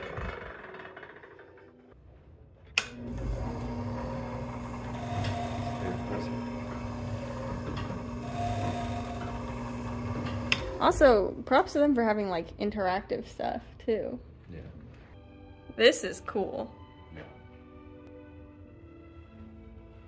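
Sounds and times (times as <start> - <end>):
small electric motor humming: 3.0 - 11.1.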